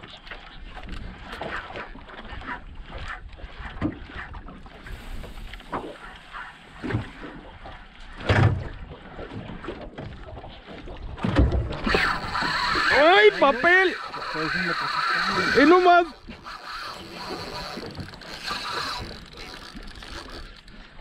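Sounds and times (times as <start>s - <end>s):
small waves lapping: 0.0s - 21.0s.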